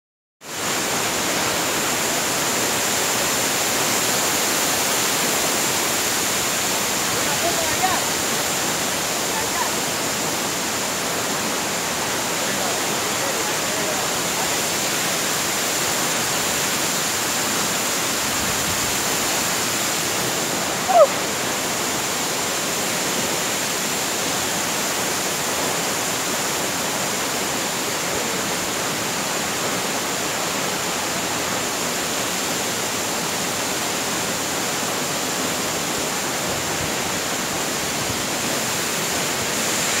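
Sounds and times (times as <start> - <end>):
waterfall rushing: 0.5 - 40.0.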